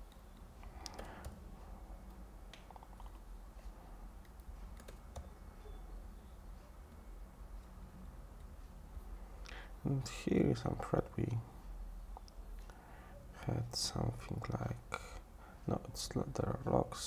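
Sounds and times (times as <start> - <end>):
low steady hum: 0.0 - 17.0
typing on computer keyboard: 0.8 - 1.4, 4.2 - 5.3.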